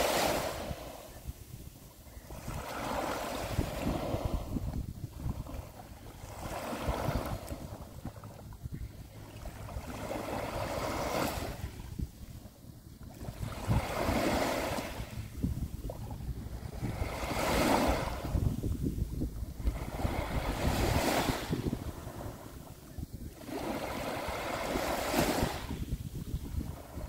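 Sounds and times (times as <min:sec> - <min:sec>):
waves washing on sand: 0:00.0 - 0:12.5, 0:13.1 - 0:27.0
wind buffeting microphone: 0:00.0 - 0:27.0.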